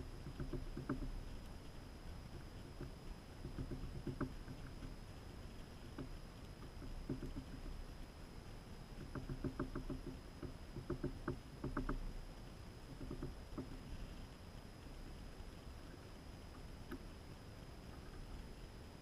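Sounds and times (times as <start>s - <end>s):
bird clicking and tapping at feeder: 0.2s - 1.1s, 2.8s - 4.9s, 6.0s - 7.7s, 9.0s - 12.1s, 12.9s - 13.8s.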